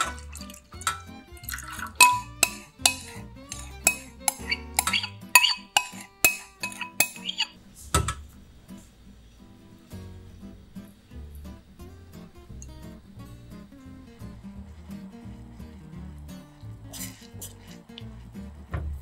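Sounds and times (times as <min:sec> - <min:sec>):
metal utensil scraping a pot: 0:00.0 - 0:07.6.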